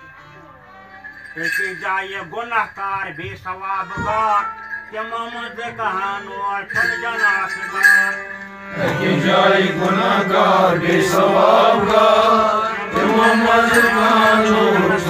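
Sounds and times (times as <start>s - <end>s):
melodic chanting: 4.4s - 15.0s.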